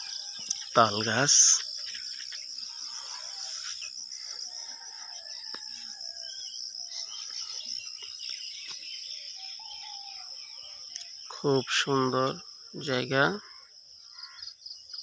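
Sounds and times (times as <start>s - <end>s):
high-pitched insect drone: 0.0s - 8.4s
faint bird calls: 0.0s - 11.4s, 13.2s - 15.0s.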